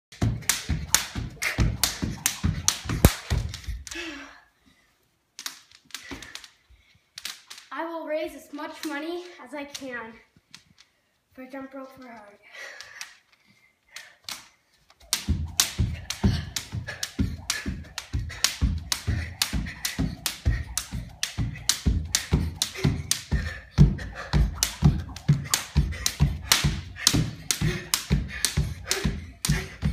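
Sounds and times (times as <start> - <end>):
jump rope slapping wooden floor: 0.1 - 4.0, 5.4 - 6.6, 14.0 - 29.9.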